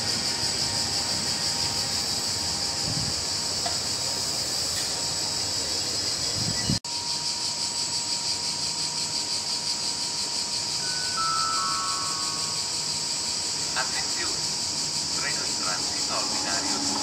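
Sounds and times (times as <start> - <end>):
cicadas chirring: 0.0 - 17.0.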